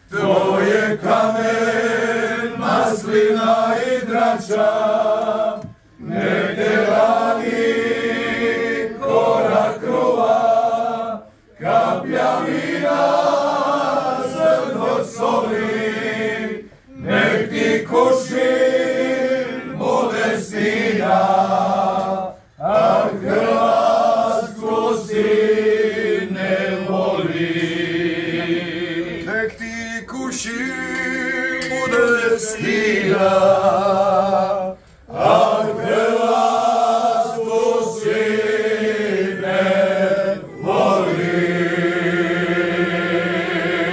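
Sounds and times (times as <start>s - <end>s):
men singing in harmony: 0.1s - 43.9s.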